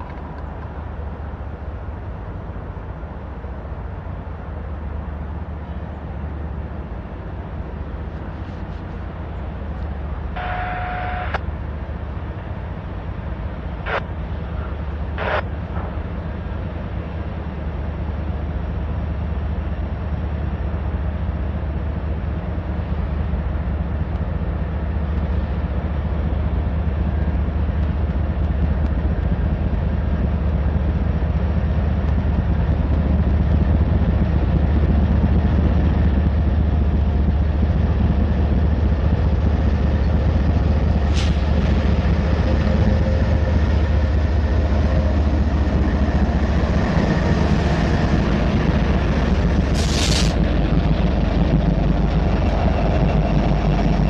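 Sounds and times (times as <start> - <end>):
diesel locomotive rumble: 0.0 - 54.0
brief sharp high noise: 49.7 - 50.4.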